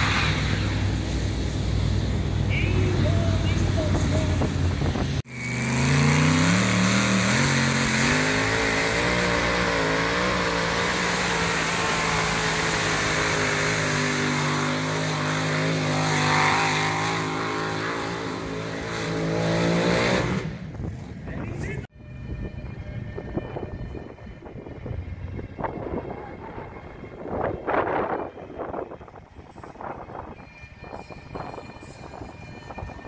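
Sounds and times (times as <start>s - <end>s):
tractor engine revving under load: 3.6s - 20.8s.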